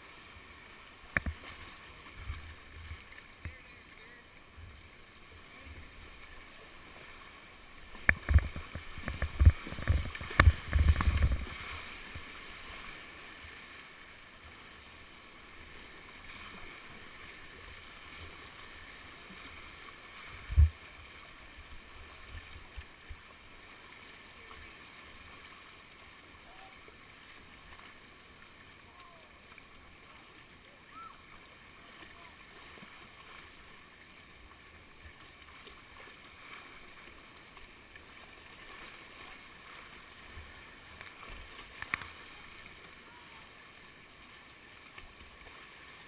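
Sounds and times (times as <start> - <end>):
thumps and splashes: 1.1 - 1.6, 7.9 - 12.2, 20.4 - 20.8.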